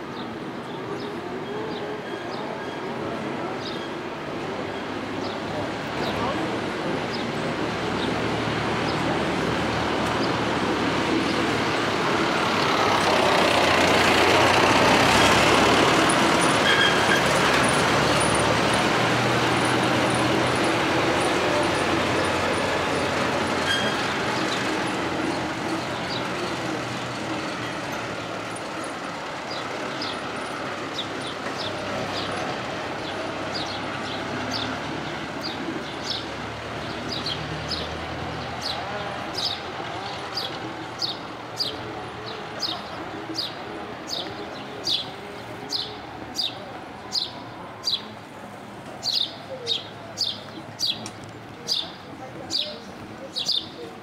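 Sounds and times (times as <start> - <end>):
farm vehicle driving past: 7.8 - 43.8.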